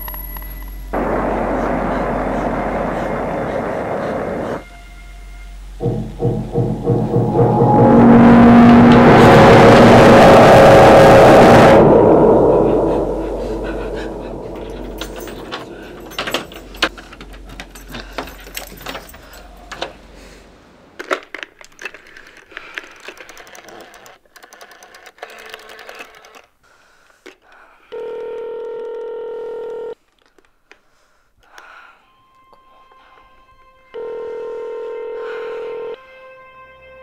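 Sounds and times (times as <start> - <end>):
low drone: 0.0 - 19.7
phone dialling clicks: 28.0 - 30.0
telephone tone: 28.0 - 30.0, 34.0 - 36.0.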